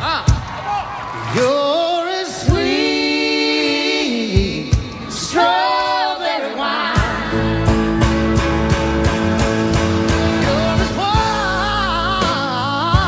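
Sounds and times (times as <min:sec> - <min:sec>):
live band with drums and horns: 0:00.0 - 0:05.6, 0:06.9 - 0:13.0
voices singing harmony: 0:01.4 - 0:08.4.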